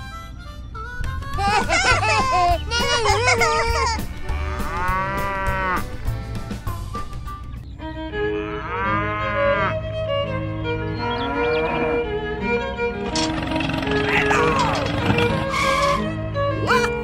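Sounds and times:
light background music: 0:00.0 - 0:17.0
cow mooing: 0:04.3 - 0:05.9, 0:08.4 - 0:09.8, 0:11.2 - 0:12.1, 0:13.1 - 0:16.0.

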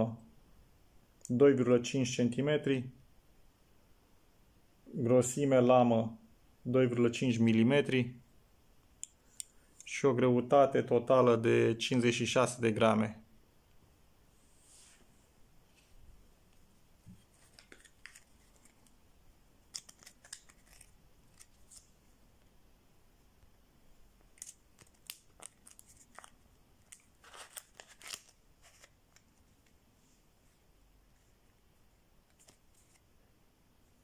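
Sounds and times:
paper banknotes rustling: 0:17.1 - 0:19.0, 0:19.7 - 0:21.9, 0:24.4 - 0:29.7, 0:32.3 - 0:33.0.

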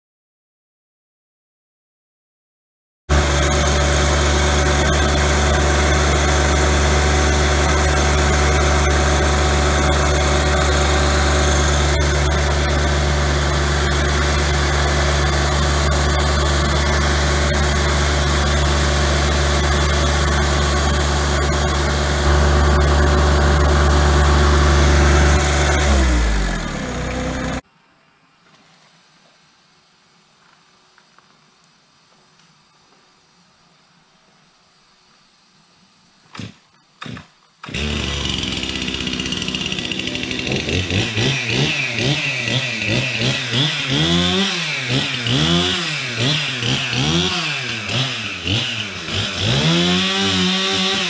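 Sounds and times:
tractor diesel engine running: 0:03.1 - 0:27.6, 0:37.7 - 0:51.0.

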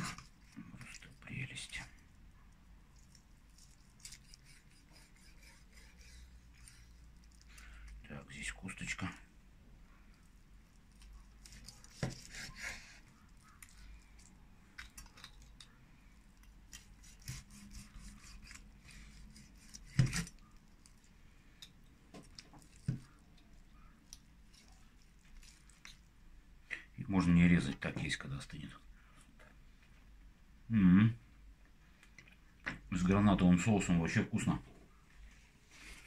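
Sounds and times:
knife scraping: 0:03.0 - 0:07.6, 0:10.9 - 0:15.8, 0:16.7 - 0:21.1.

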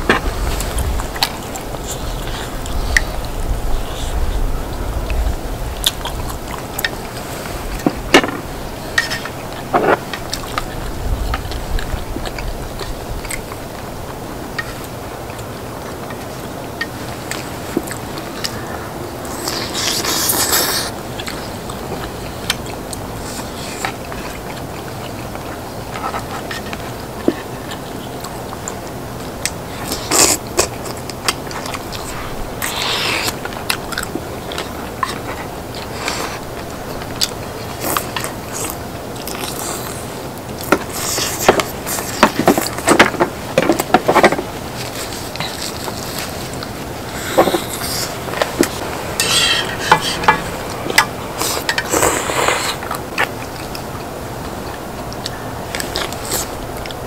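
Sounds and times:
steady background noise: 0:00.0 - 0:57.0
chewing and biting: 0:05.8 - 0:57.0
utensils scraping on griddle: 0:49.2 - 0:50.5.

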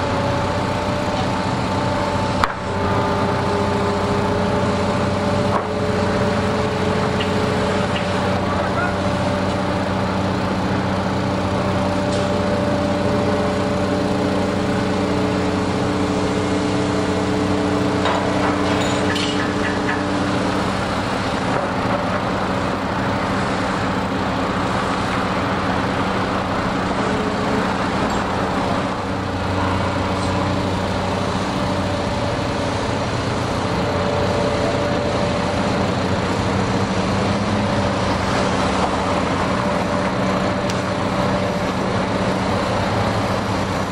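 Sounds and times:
heavy diesel engine running: 0:00.0 - 0:43.9.

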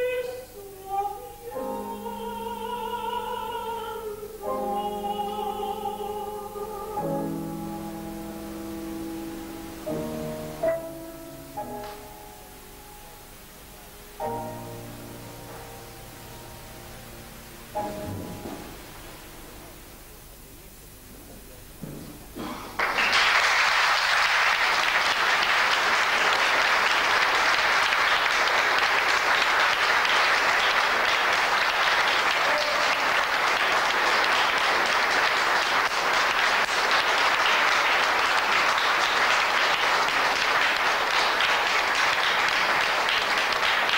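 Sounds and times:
audience applauding: 0:22.4 - 0:43.9.

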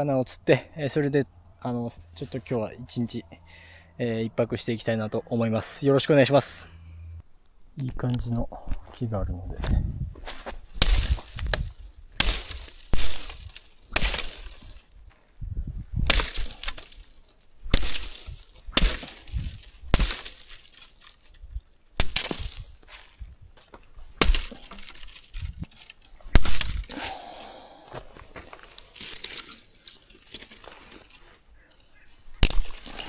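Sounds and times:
machete chopping wood: 0:10.8 - 0:14.8, 0:16.0 - 0:17.0, 0:17.7 - 0:20.8, 0:22.0 - 0:22.7, 0:24.2 - 0:25.2, 0:26.3 - 0:27.1, 0:32.4 - 0:33.0.

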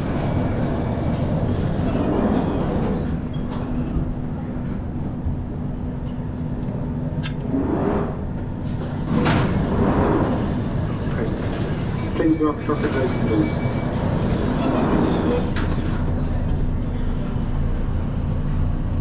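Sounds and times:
train low rumble: 0:00.0 - 0:19.0.

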